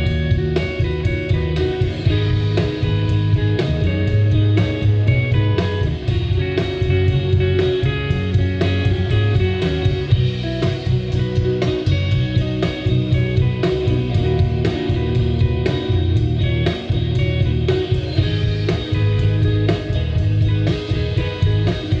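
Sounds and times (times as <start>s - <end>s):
drum kit beat: 0.0s - 22.0s
electric bass: 0.0s - 22.0s
electric guitars: 0.0s - 22.0s.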